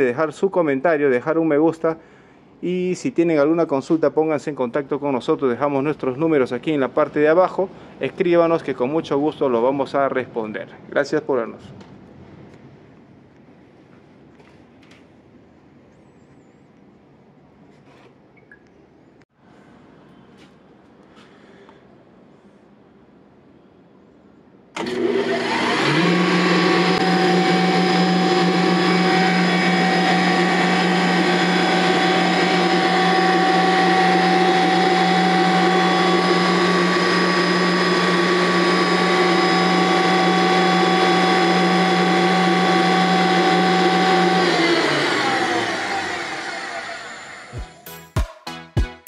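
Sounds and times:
air compressor running: 0:24.8 - 0:47.7.

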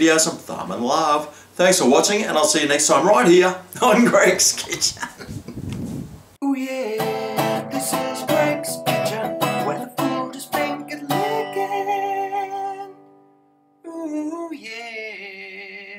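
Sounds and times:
strummed acoustic guitar: 0:06.8 - 0:13.8
pitched musical tone: 0:07.0 - 0:13.8.

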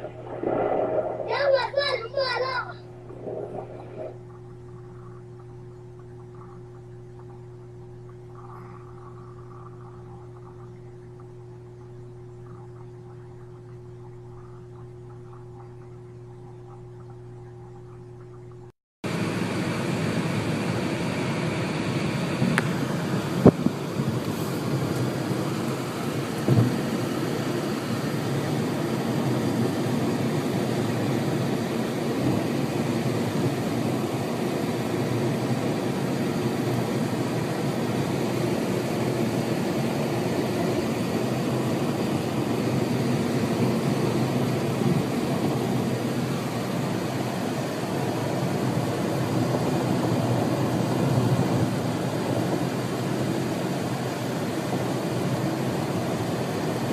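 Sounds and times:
car road and engine rumble: 0:19.1 - 0:34.0.

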